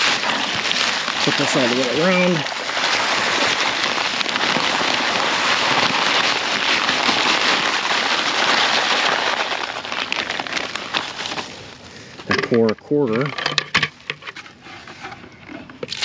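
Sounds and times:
gravel pouring from bag: 0.0 - 16.0.

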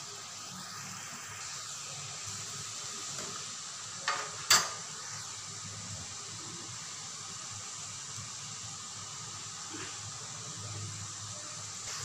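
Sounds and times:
oil sizzling in deep fryer: 0.0 - 12.0.

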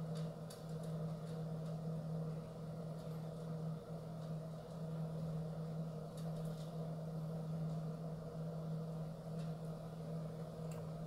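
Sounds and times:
low mechanical hum: 0.0 - 11.0
faint clicks: 10.6 - 10.9.

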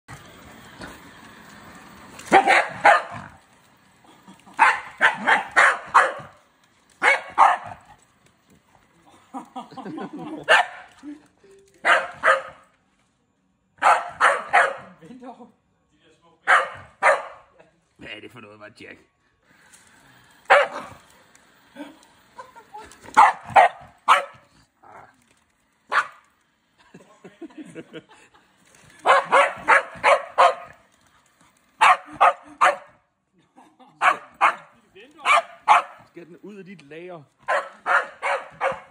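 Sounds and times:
dog barking: 2.3 - 3.3, 4.6 - 6.3, 7.0 - 7.8, 10.5 - 10.9, 11.8 - 12.6, 13.8 - 15.0, 16.5 - 17.5, 20.5 - 20.9, 23.2 - 24.5, 25.9 - 26.2, 29.0 - 30.7, 31.8 - 33.0, 34.0 - 36.0, 37.5 - 38.9.

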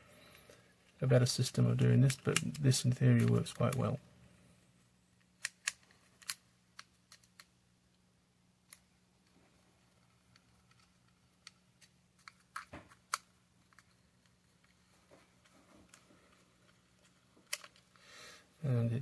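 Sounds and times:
screwdriver and plastic parts clicking: 5.4 - 7.5, 17.4 - 17.9.

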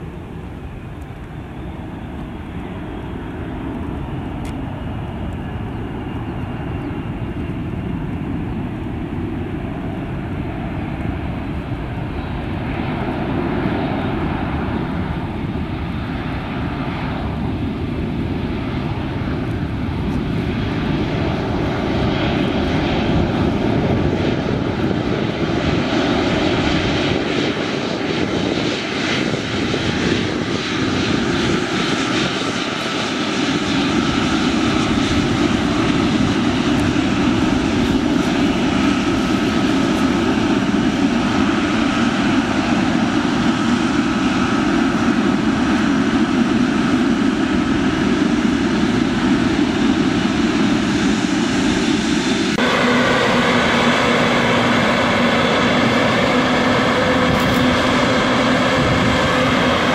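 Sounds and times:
jet engine roar: 0.0 - 59.9.

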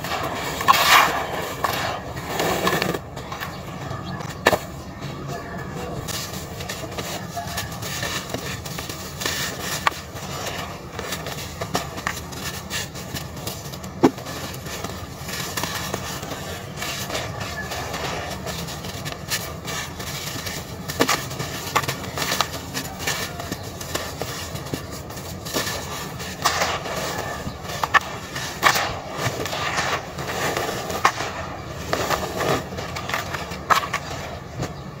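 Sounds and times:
dirt crumbs rustling: 0.0 - 35.0
fingers raking dry powder: 5.8 - 30.9.

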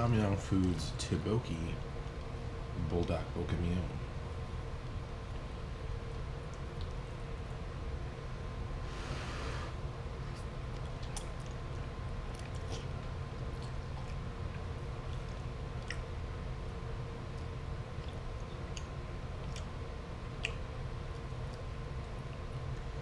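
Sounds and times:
person chewing noodles: 10.2 - 16.2, 17.3 - 23.0.

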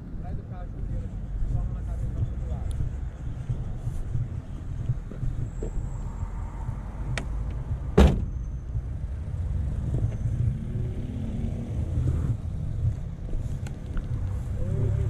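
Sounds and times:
vehicle door slamming: 7.9 - 8.4.

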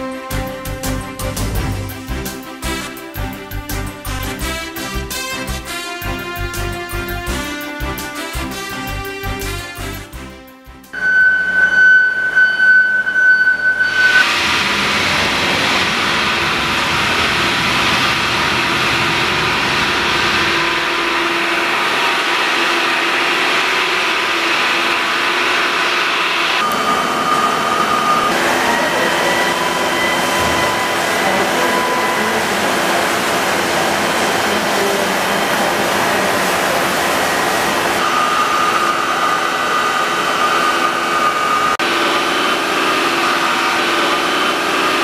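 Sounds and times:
router machine whining: 20.3 - 36.2.

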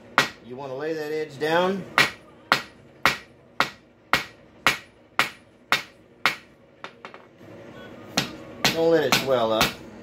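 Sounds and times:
hammer striking metal on anvil: 2.0 - 7.2.

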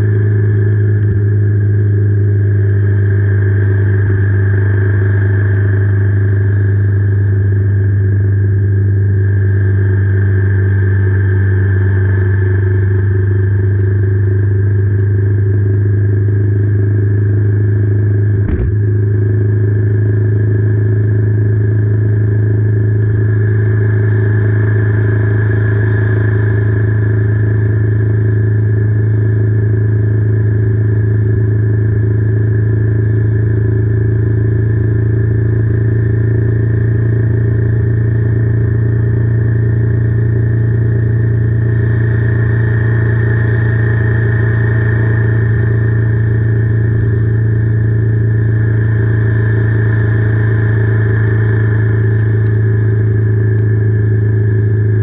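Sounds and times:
motorcycle engine droning: 0.0 - 55.0
single knock: 18.4 - 18.8.

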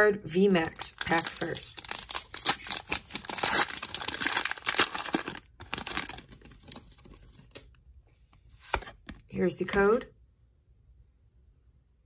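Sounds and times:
foil wrapper crinkling: 0.6 - 7.6
cards rustling and ticking: 0.6 - 9.2.

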